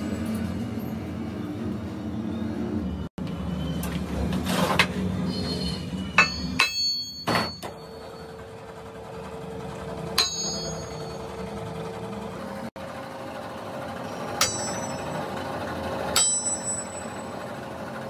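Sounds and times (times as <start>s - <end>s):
hammer striking metal: 6.1s - 7.8s, 10.1s - 11.3s, 14.3s - 15.4s, 16.1s - 17.3s.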